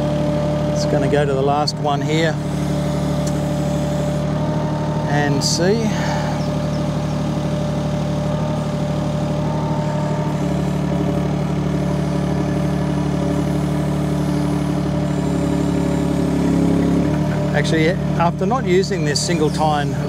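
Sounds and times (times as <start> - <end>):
excavator engine running: 0.0 - 20.0.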